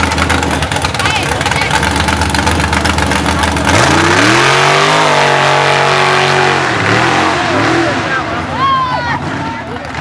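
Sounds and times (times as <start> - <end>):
buggy engine revving: 0.0 - 10.0.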